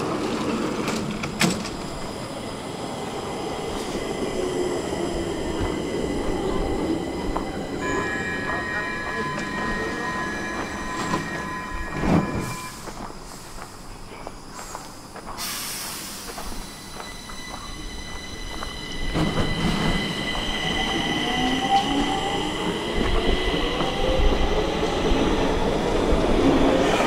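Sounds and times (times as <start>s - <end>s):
train whine and wheel noise: 0.0s - 27.0s
hiss of air: 12.8s - 16.8s.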